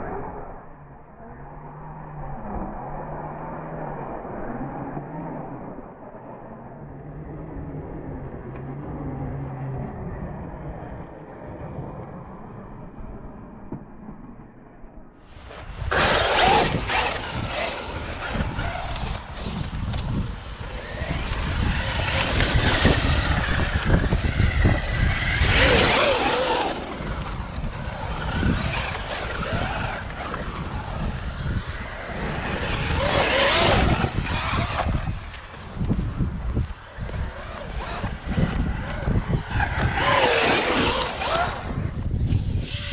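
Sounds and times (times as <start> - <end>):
rumbling tyre and ground noise: 0.0 - 42.9
wind noise: 15.2 - 42.9
electric motor whine: 15.4 - 42.9.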